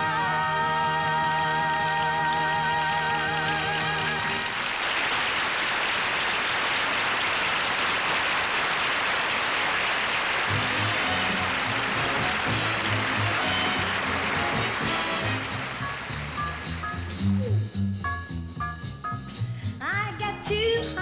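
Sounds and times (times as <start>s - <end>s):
live pop song with singing: 0.0s - 4.4s
audience applauding: 2.3s - 17.8s.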